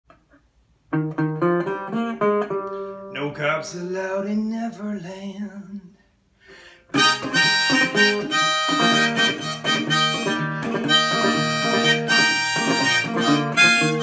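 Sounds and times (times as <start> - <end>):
fingerpicked resonator guitar: 0.9 - 3.6, 7.0 - 14.0
harmonica: 6.9 - 14.0.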